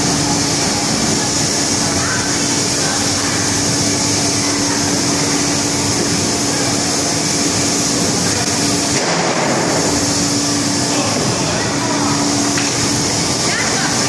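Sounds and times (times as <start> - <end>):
production line machine hum: 0.0 - 14.0.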